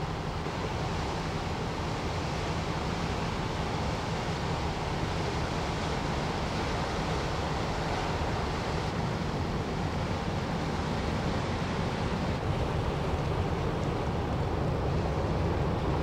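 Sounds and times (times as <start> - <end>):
low ship rumble: 0.0 - 16.0
water rushing along ship hull: 0.0 - 16.0.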